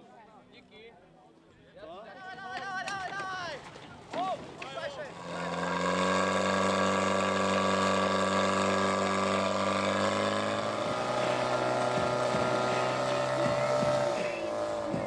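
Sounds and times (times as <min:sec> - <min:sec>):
fire pump engine droning: 0:05.1 - 0:15.0.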